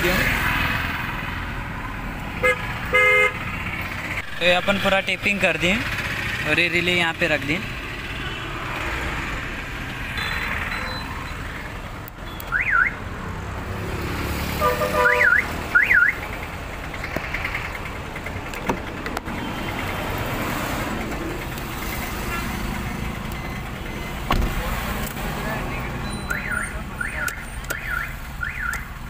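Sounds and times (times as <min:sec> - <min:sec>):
short steady beep: 0:10.2 - 0:11.5
car alarm siren chirps: 0:12.2 - 0:13.0, 0:15.0 - 0:16.2, 0:26.1 - 0:29.0.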